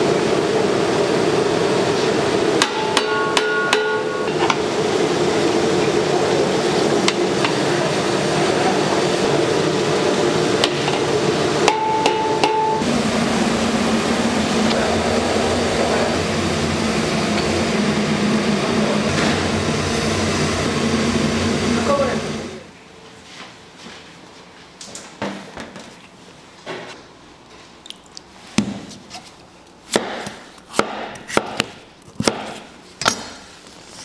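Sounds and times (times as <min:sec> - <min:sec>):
steady machine noise: 0:00.0 - 0:22.8
low machine hum: 0:00.0 - 0:23.1.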